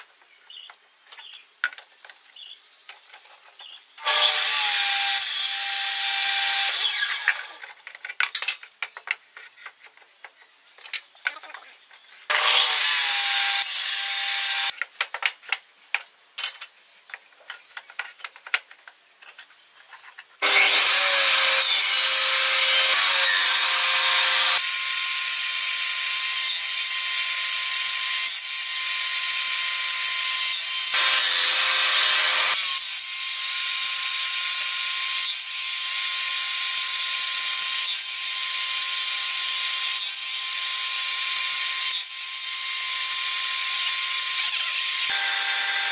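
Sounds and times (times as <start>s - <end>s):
table saw cutting wood: 4.0s - 7.9s, 12.3s - 14.7s, 20.4s - 45.9s.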